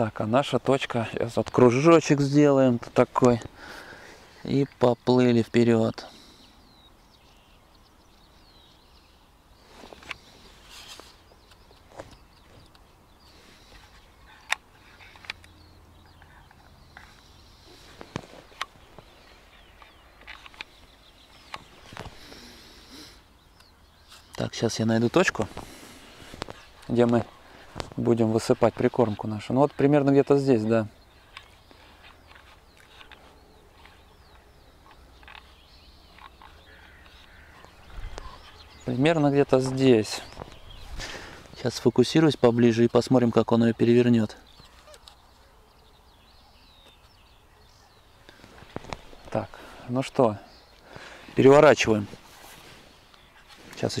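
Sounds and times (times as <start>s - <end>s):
bird chirps: 3.1s - 54.0s
sharp clicks: 14.4s - 15.6s.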